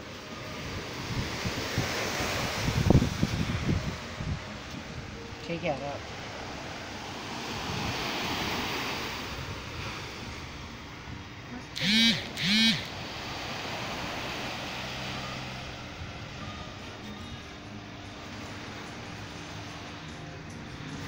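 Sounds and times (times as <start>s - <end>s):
wind on microphone: 0.0s - 5.3s, 7.4s - 15.0s
waves washing onto sandy beach: 0.0s - 21.0s
short loud rising falling calls: 11.8s - 13.0s.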